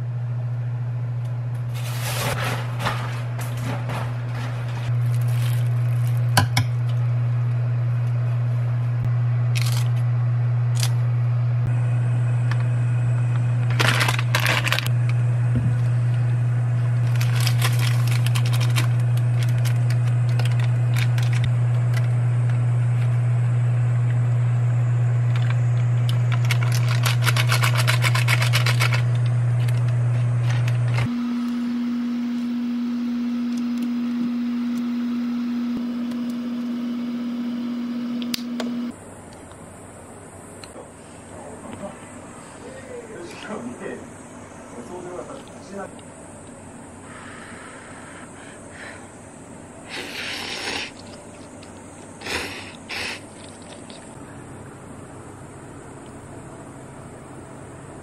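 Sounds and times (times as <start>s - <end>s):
oven electrical hum: 0.0s - 58.0s.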